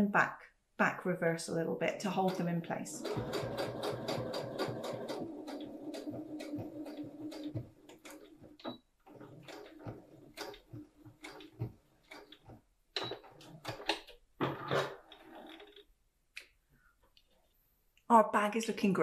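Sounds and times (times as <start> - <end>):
sewing machine stitching: 2.1 - 15.9.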